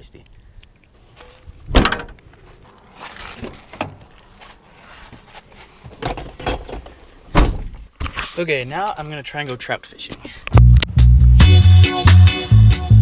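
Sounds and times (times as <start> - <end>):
footsteps on dirt: 1.0 - 6.0
rustling and knocks in car: 5.0 - 8.2.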